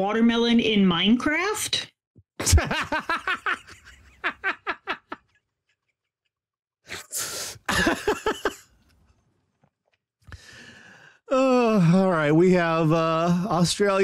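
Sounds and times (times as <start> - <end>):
man laughing hard: 2.4 - 5.9, 7.7 - 8.7.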